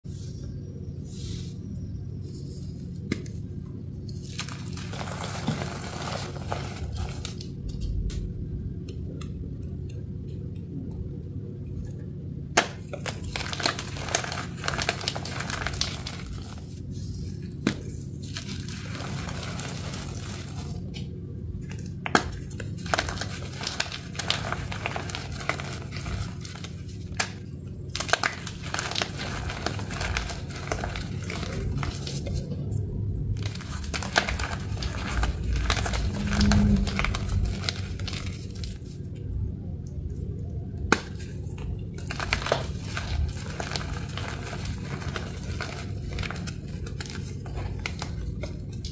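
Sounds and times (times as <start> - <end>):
sharp chalk cracks: 12.6 - 16.6, 17.4 - 32.6, 40.8 - 48.9.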